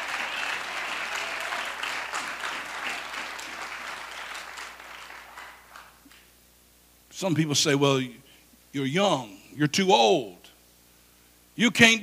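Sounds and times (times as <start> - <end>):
congregation applauding: 0.0 - 6.2.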